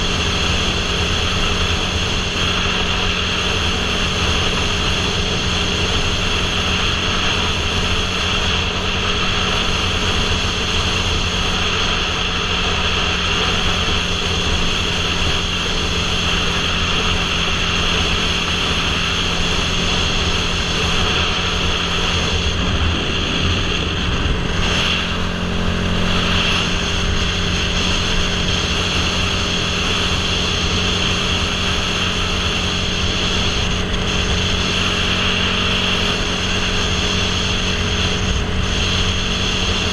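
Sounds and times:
motorcycle engine running: 0:00.0 - 0:39.9
wind noise on microphone: 0:00.0 - 0:39.9.

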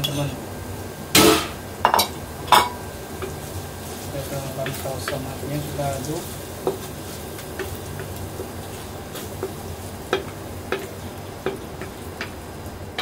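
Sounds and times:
frying sizzle: 0:00.0 - 0:13.0
spatula scraping a wok: 0:02.6 - 0:12.0.

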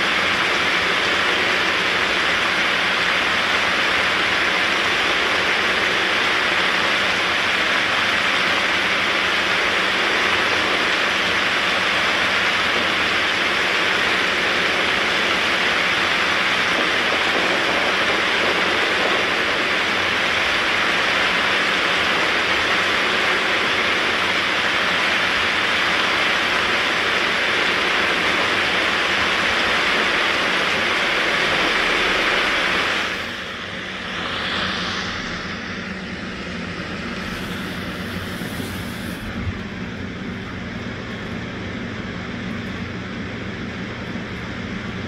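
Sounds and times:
heavy rain pouring: 0:00.0 - 0:34.3.

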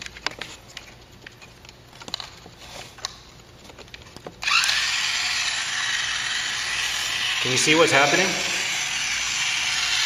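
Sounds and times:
toy car motor whirring: 0:04.4 - 0:10.0.

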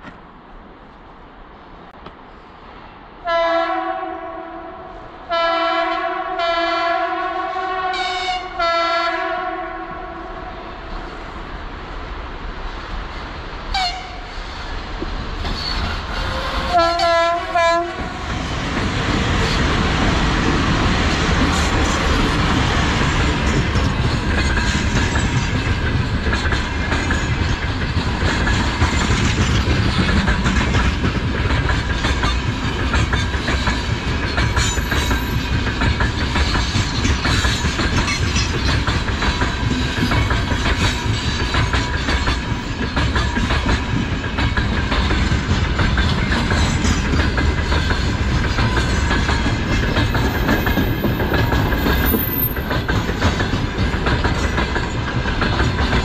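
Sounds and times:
train wheels clattering over rail joints: 0:14.7 - 0:56.0.

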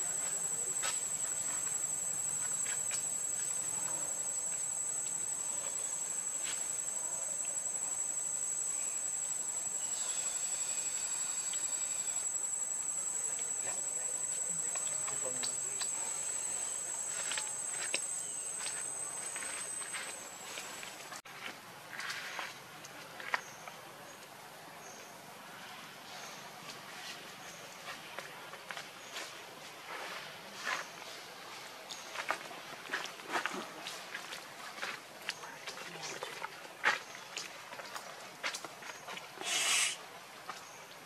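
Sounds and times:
insects droning high-pitched: 0:00.0 - 0:21.2, 0:39.4 - 0:40.0.

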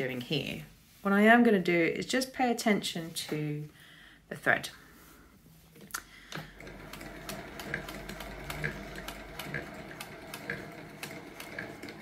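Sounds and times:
sewing machine stitching: 0:06.5 - 0:12.0.

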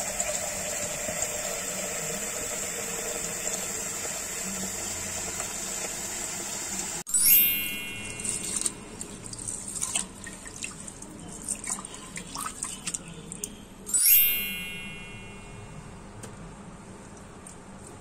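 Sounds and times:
bright ringing swell: 0:07.1 - 0:08.8, 0:13.9 - 0:15.9
small splashes and clicks: 0:08.4 - 0:13.6
water sloshing and dripping: 0:08.4 - 0:13.6.

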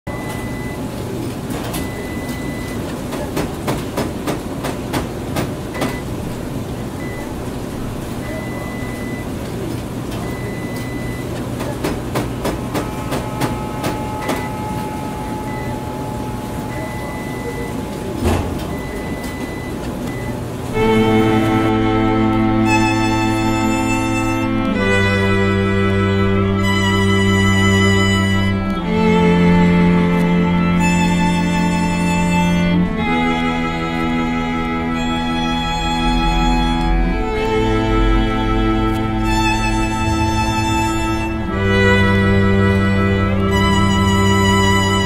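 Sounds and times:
noisy rumble: 0:00.1 - 0:45.0
high beeps: 0:01.8 - 0:02.8, 0:08.2 - 0:09.3, 0:10.2 - 0:11.3, 0:12.8 - 0:21.0
clicks and knocks: 0:11.4 - 0:15.7
low hum: 0:12.6 - 0:45.0.

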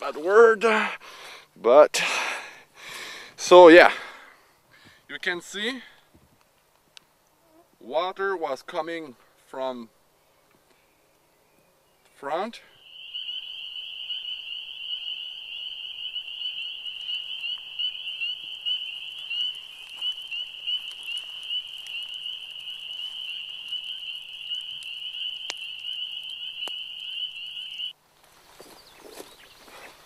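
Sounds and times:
frogs trilling: 0:12.6 - 0:28.0.

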